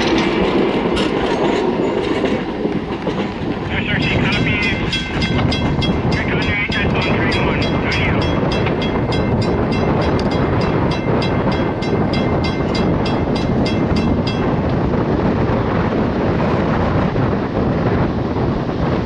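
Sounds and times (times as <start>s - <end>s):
train cars rumbling on track: 0.0s - 19.0s
crossing bell ringing rapidly: 4.1s - 14.7s.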